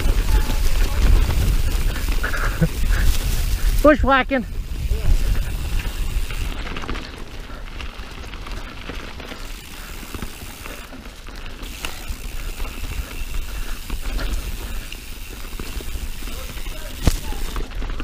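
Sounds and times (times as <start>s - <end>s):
bike chain and frame rattling: 0.0s - 18.0s
tyres clattering over dirt and rocks: 5.1s - 18.0s.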